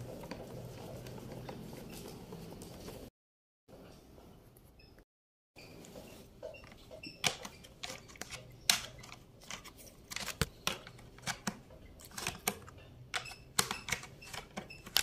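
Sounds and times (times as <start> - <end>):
plastic parts clicking: 7.2 - 15.0.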